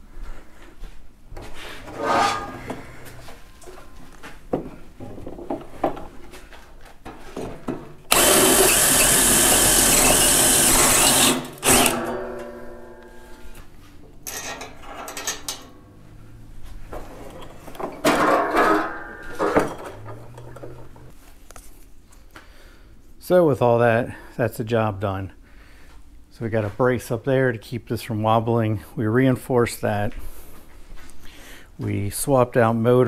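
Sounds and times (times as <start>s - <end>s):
shop handling noise: 1.3s - 8.6s, 10.9s - 16.0s, 16.6s - 21.5s
power tool running: 8.1s - 13.4s.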